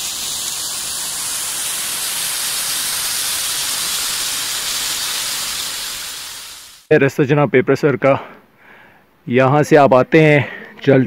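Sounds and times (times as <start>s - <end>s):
small waterfall splashing: 0.0s - 6.9s.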